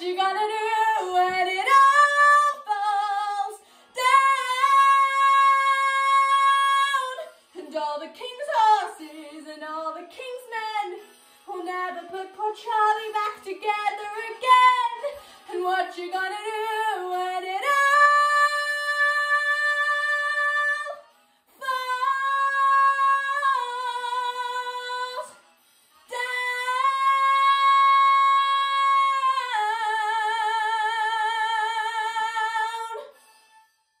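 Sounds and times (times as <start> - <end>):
woman singing sustained notes: 26.1 - 33.1.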